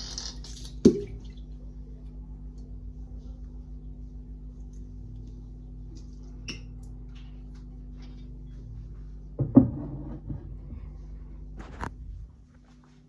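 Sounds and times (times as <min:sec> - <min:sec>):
steady low hum: 0:00.0 - 0:13.0
cupboard door knock and rattle: 0:09.4 - 0:10.4.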